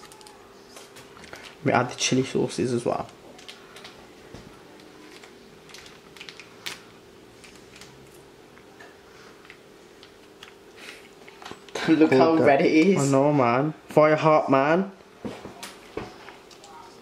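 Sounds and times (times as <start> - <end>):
plastic sachets crinkling and tearing: 1.1 - 1.8, 2.9 - 8.2.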